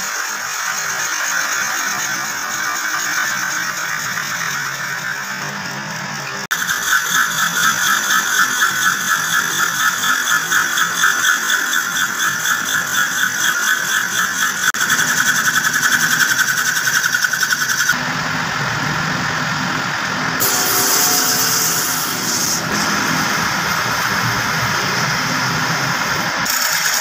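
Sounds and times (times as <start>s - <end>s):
lathe running: 0.0s - 27.0s
tool bit cutting wood: 6.5s - 18.0s, 20.4s - 23.4s, 26.4s - 27.0s.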